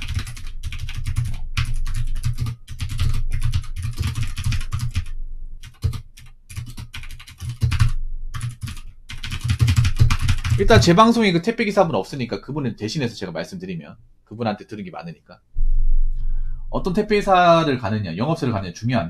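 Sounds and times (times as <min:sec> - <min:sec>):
keyboard typing: 0:00.0 - 0:10.8.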